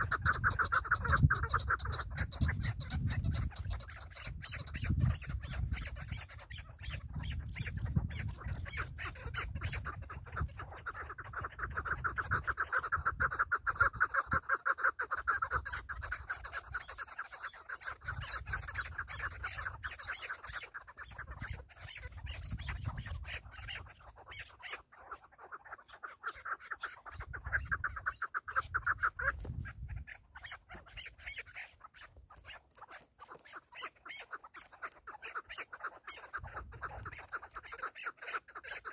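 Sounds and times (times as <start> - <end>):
partridges clucking calls: 0.0 - 38.9.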